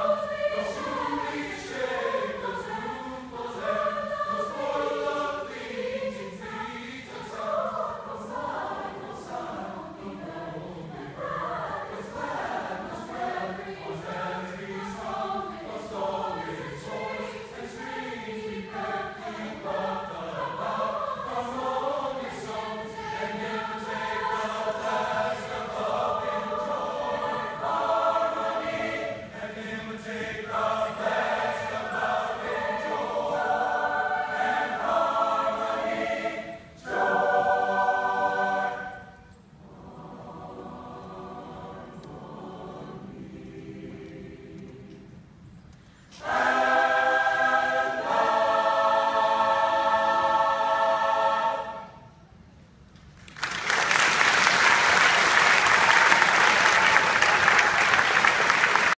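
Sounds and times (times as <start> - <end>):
choir singing: 0.0 - 45.4, 46.1 - 52.5, 54.0 - 59.0
audience applause: 53.2 - 59.0.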